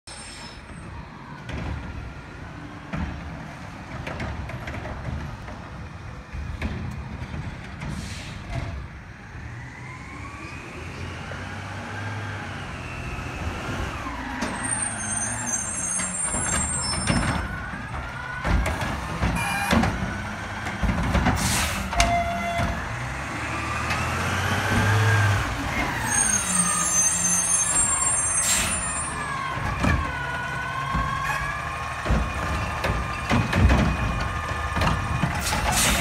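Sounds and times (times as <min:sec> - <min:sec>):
air brake hiss: 0:00.1 - 0:00.7, 0:07.9 - 0:08.6, 0:21.4 - 0:22.0, 0:28.3 - 0:29.0, 0:35.4 - 0:36.0
truck engine rumble with whine: 0:00.1 - 0:36.0.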